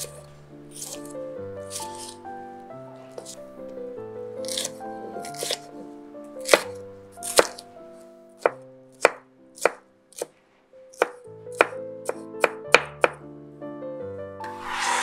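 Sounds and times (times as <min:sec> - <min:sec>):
knife chopping on wooden board: 0:00.0 - 0:02.2, 0:03.1 - 0:03.4, 0:04.4 - 0:05.7, 0:06.4 - 0:07.6, 0:08.4 - 0:10.3, 0:11.0 - 0:13.2.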